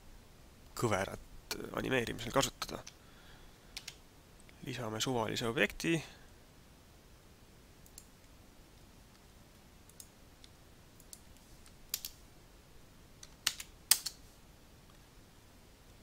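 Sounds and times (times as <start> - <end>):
computer mouse clicks: 3.8 - 4.0, 7.8 - 8.1, 9.9 - 12.2, 13.2 - 14.2
keyboard clicks: 3.8 - 4.0, 11.9 - 12.2, 13.2 - 14.2.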